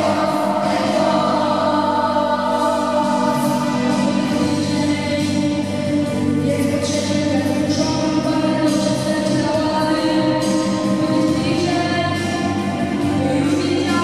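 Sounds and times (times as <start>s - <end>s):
children's voices: 0.0s - 5.9s
boy singing into microphone: 0.0s - 14.0s
musical accompaniment: 0.0s - 14.0s.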